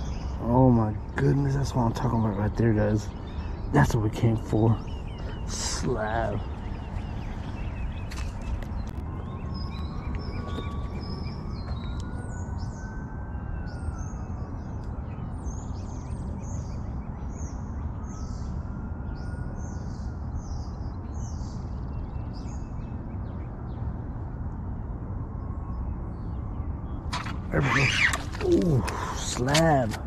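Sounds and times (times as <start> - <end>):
steady low rumble: 0.0 - 13.0
distant siren: 0.0 - 30.0
songbird chirping: 0.0 - 30.0.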